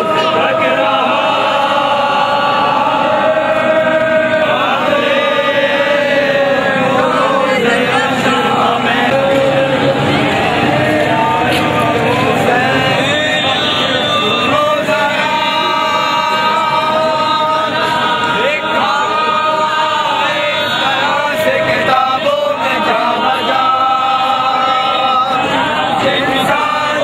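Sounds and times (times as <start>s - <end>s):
men chanting in chorus: 0.0s - 27.0s.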